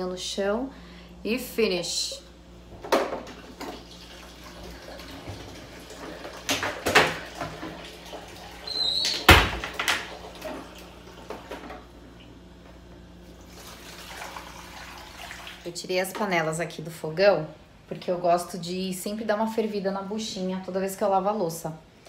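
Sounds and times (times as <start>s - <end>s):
clatter at kitchen sink: 5.0s - 7.9s, 9.0s - 10.7s.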